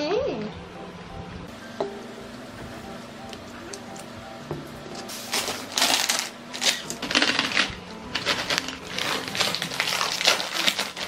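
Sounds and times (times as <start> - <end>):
crunching snack food: 5.3 - 11.0.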